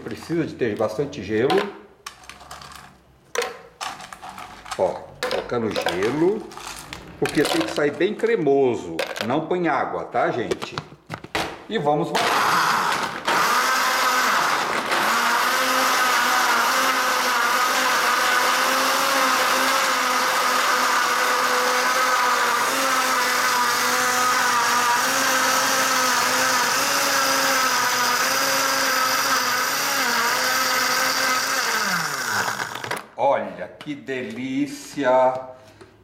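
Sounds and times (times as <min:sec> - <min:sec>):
blender crushing ice: 0:12.2 - 0:33.1.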